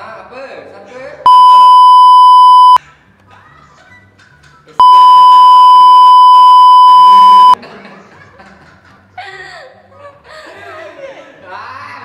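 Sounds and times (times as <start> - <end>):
high-pitched censor bleep: 1.3 - 2.8, 4.8 - 7.6.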